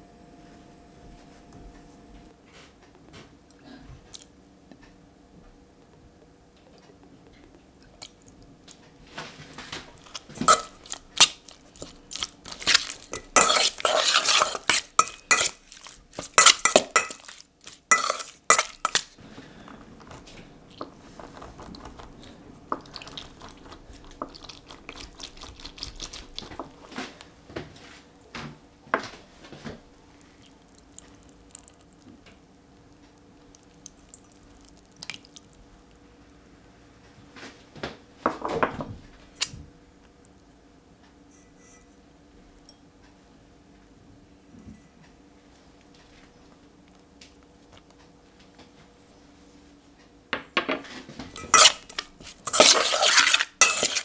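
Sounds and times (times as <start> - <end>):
metal spoon scraping a steel bowl: 12.5 - 19.1, 51.4 - 54.0.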